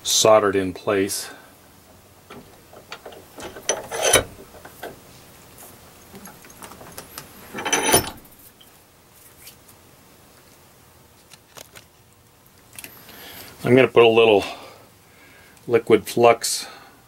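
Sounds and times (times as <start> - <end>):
metal vise clattering: 2.3 - 5.1, 6.2 - 8.4.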